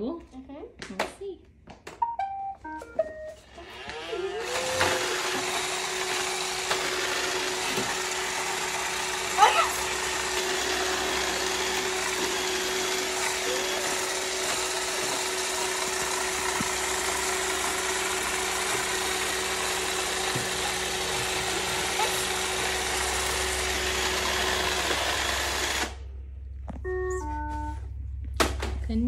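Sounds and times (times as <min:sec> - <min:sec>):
robot vacuum whirring: 0:03.4 - 0:26.0.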